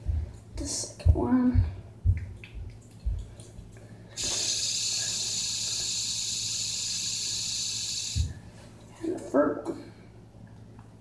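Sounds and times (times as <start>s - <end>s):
fidget spinner whirring: 4.2s - 8.4s.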